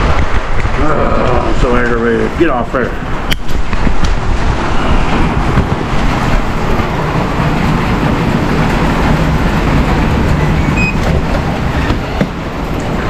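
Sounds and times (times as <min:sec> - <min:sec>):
heavy rainstorm: 0:00.0 - 0:13.0
keypad door lock beeps: 0:10.8 - 0:11.0.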